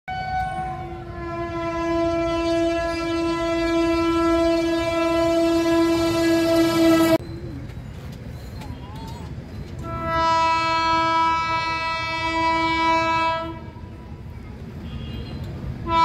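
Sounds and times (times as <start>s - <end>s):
locomotive air horn blast: 0.1s - 7.2s, 9.8s - 13.8s.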